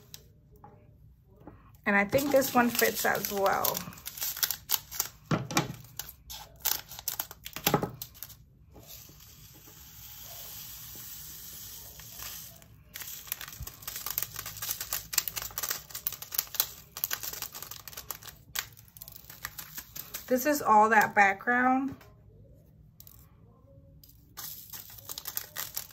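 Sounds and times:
plastic bag crinkling: 0:02.0 - 0:08.4, 0:11.9 - 0:20.6, 0:24.4 - 0:25.9
beads rattling into plastic container: 0:24.4 - 0:25.9.

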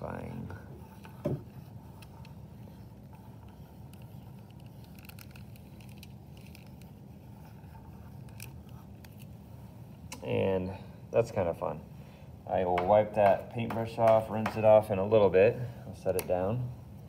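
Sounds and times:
paintbrush handle scraping shaving cream: 0:00.0 - 0:09.3
steady low hum: 0:00.0 - 0:17.0.

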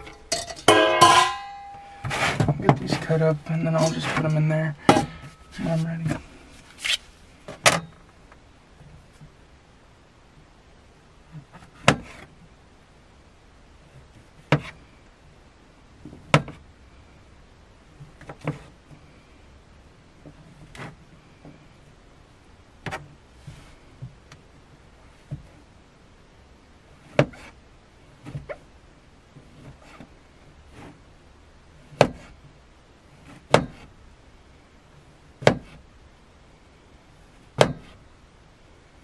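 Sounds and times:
quiet handling sounds: 0:00.0 - 0:09.6, 0:20.1 - 0:25.8.

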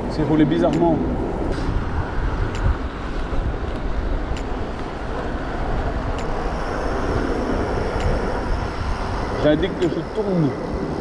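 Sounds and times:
wind rushing over microphone: 0:00.0 - 0:11.0
faint ticks: 0:06.1 - 0:07.0, 0:07.9 - 0:08.5.

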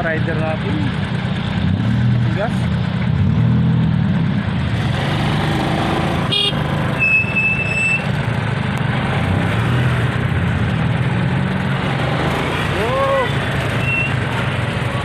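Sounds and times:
motorcycle engine running: 0:00.0 - 0:15.0
vehicle horn beep: 0:06.3 - 0:08.1, 0:13.8 - 0:14.2.

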